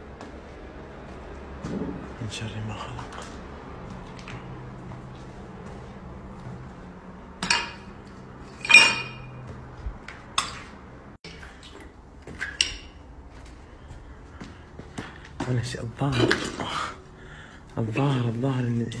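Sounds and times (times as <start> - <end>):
debris clattering underfoot: 2.9 - 13.6.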